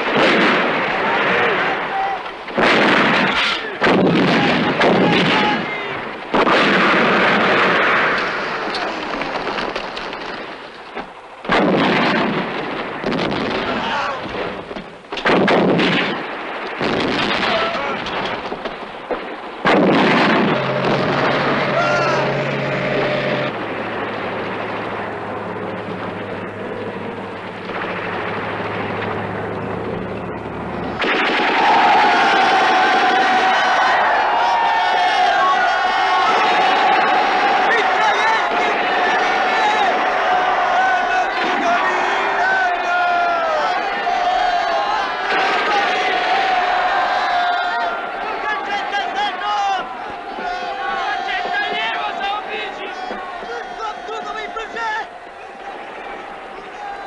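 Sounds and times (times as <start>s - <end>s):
artillery booms with rumble: 0.0s - 1.8s, 2.4s - 34.6s
men yelling battle cry: 20.6s - 23.6s, 31.5s - 55.8s.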